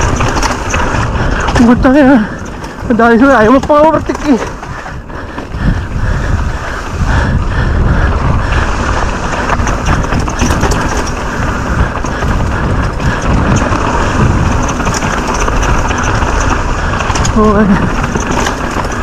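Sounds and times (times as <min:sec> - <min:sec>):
bike clattering over rough ground: 0:00.0 - 0:19.0
wind rushing over microphone: 0:00.0 - 0:19.0.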